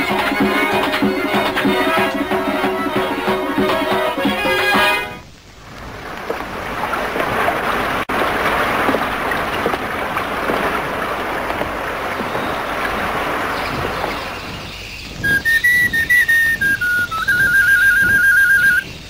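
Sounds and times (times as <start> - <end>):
river rushing over rapids: 0.0 - 14.6.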